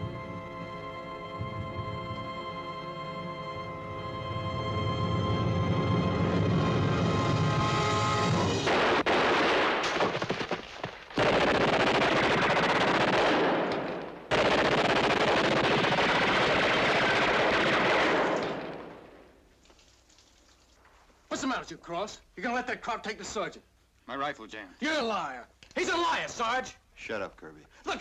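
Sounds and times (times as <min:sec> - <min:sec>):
music: 0:00.0 - 0:08.4
automatic gunfire bursts: 0:11.2 - 0:18.6.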